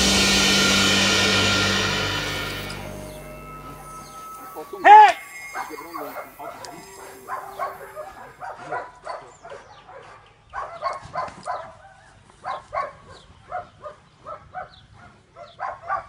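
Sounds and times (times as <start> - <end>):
dog barking: 5.0 - 16.0.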